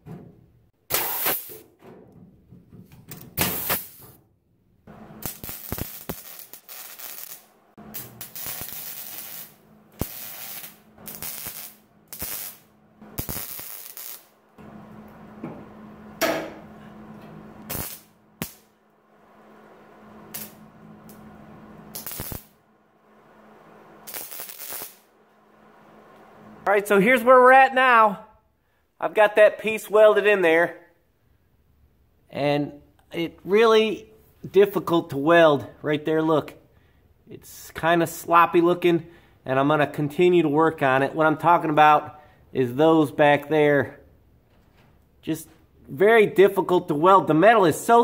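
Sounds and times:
welder crackling and hissing: 0:00.9 - 0:01.6, 0:03.4 - 0:04.2, 0:05.2 - 0:14.4, 0:17.6 - 0:18.8, 0:20.3 - 0:21.2, 0:21.9 - 0:22.6, 0:24.0 - 0:25.1
pneumatic punch tool firing: 0:00.9 - 0:01.7, 0:03.4 - 0:04.2.

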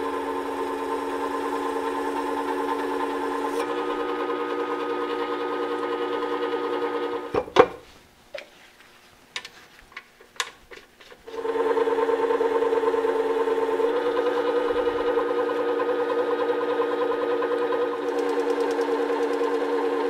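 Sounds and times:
sharpening machine motor humming: 0:00.0 - 0:07.3, 0:11.3 - 0:20.0.

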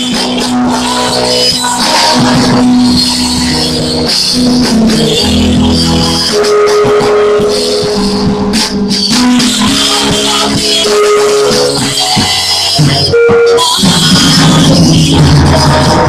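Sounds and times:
group singing gospel: 0:00.0 - 0:06.2, 0:09.1 - 0:14.7
hand-percussion rattle: 0:00.0 - 0:16.0.

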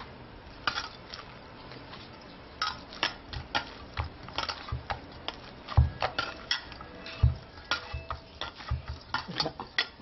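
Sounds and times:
dough thumping in bowl: 0:02.6 - 0:10.0
bangles and bowl clinking: 0:05.8 - 0:10.0.

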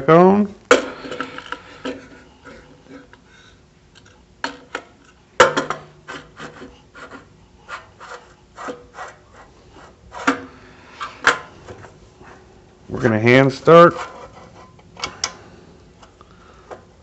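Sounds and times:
scraping: 0:06.1 - 0:14.8.

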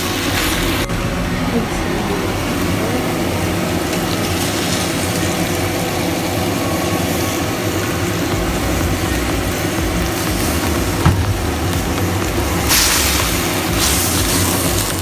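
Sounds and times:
low mechanical hum: 0:00.0 - 0:15.0
greens sizzling in a wok: 0:02.8 - 0:15.0.

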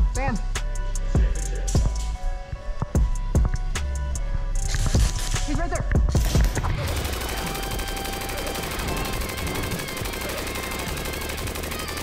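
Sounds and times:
automatic gunfire: 0:06.2 - 0:12.0.

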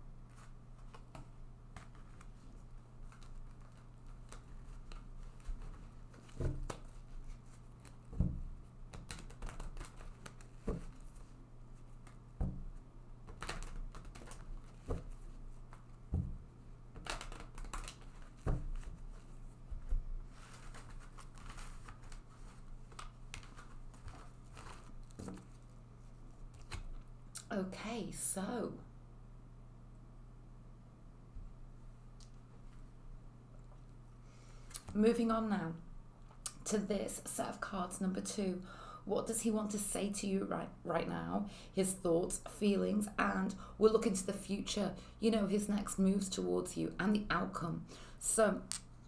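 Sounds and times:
faint low hum: 0:00.0 - 0:49.0
cards being shuffled: 0:08.9 - 0:12.2, 0:13.2 - 0:16.2, 0:16.9 - 0:25.8, 0:26.4 - 0:27.0.

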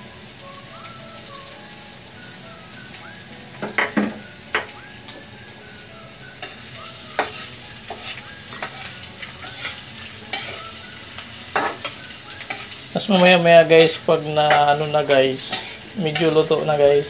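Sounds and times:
food sizzling in hot oil: 0:00.0 - 0:17.0
metal spatula scraping and knocking wok: 0:07.2 - 0:10.6.

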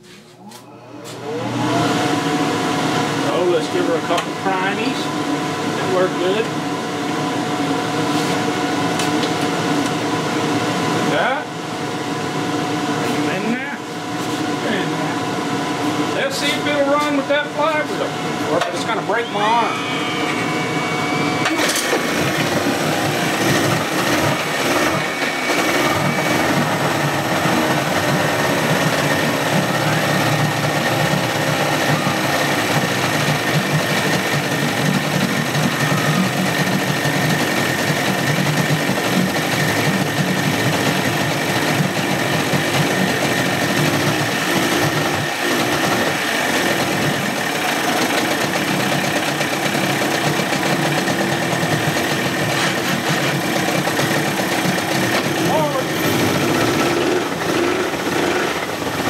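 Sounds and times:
outboard engine running: 0:19.0 - 0:59.0.

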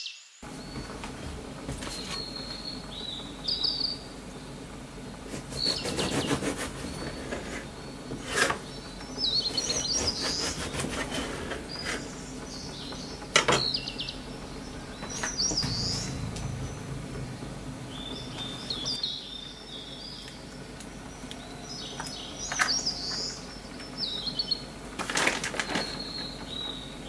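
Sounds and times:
small birds chirping: 0:00.0 - 0:25.0, 0:25.6 - 0:27.0
bread knife sawing crusty loaf: 0:05.3 - 0:07.7, 0:09.5 - 0:12.1
sharp knock: 0:14.6 - 0:18.9.

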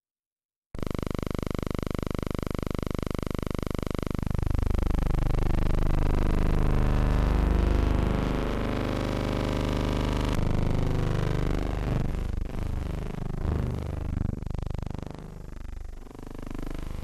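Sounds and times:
harsh buzzing sweeping tones: 0:03.8 - 0:17.0.

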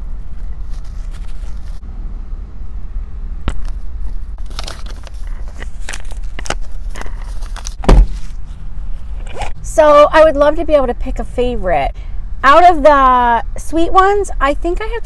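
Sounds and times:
paper napkin rustling: 0:00.0 - 0:01.8
steady low hum: 0:00.0 - 0:15.0
loud thump: 0:07.8 - 0:08.3.

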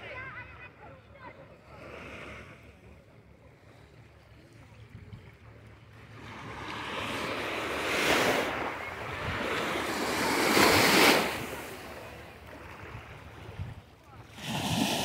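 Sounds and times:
small waves breaking on sand: 0:01.2 - 0:15.0.

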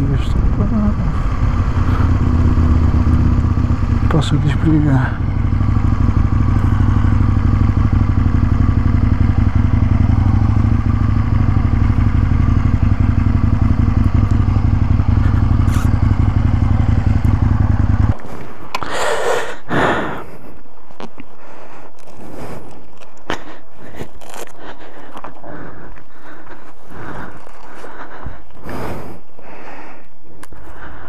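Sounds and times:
motorcycle engine rumbling: 0:00.0 - 0:20.2, 0:23.4 - 0:30.1
scraping rustling noises: 0:22.0 - 0:24.7.

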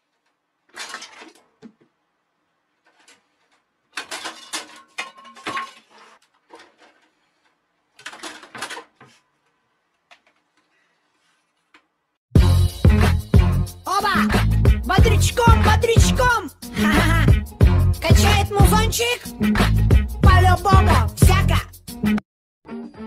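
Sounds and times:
clattering and scuffling: 0:00.0 - 0:02.0, 0:02.7 - 0:11.9.

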